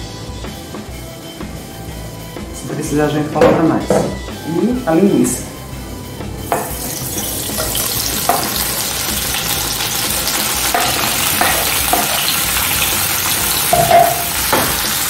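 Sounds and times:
wooden spoon knocking cutting board: 3.4 - 4.2, 6.5 - 8.7, 10.7 - 12.4, 13.6 - 14.9
sausage sizzling in oil: 6.4 - 15.0.

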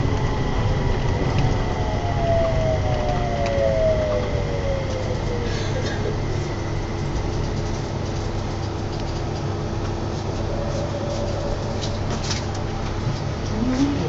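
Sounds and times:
short rising whine: 0.0 - 7.0
low rumble of moving vehicle: 0.0 - 14.0.

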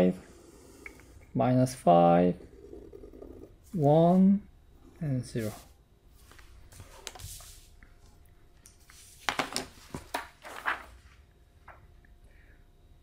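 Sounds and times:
paper sliding and rustling: 8.8 - 11.2.

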